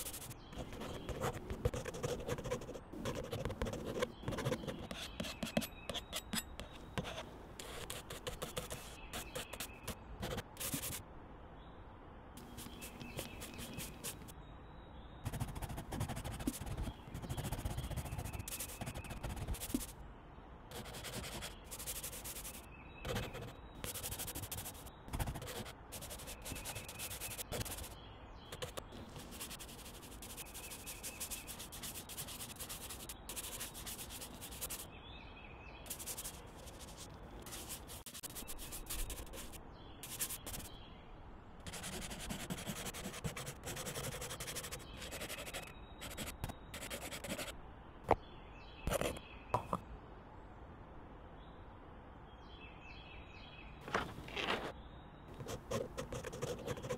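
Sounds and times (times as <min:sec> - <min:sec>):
pastel scratching on paper: 0:00.0 - 0:11.0, 0:12.4 - 0:14.3, 0:15.3 - 0:19.9, 0:20.7 - 0:34.8, 0:35.9 - 0:40.7, 0:41.7 - 0:47.5, 0:55.4 - 0:56.9.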